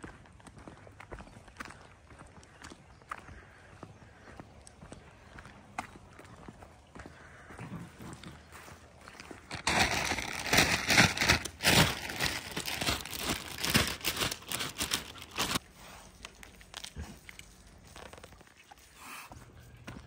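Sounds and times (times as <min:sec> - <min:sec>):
plastic bag crinkling: 0:09.5 - 0:18.8.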